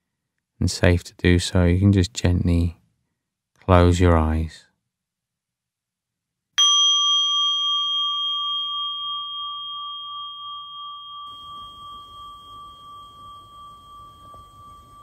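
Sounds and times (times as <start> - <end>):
meditation bell ringing: 6.6 - 15.0.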